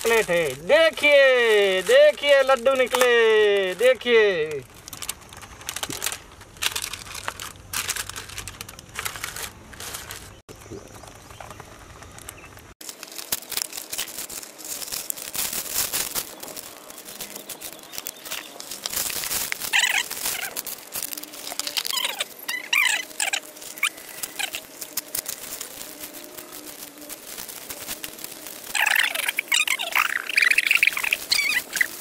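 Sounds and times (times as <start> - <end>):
wrappers rustling and crinkling: 0.0 - 10.5, 11.2 - 32.0
birds chirping: 10.3 - 12.7, 16.2 - 18.8, 28.6 - 32.0.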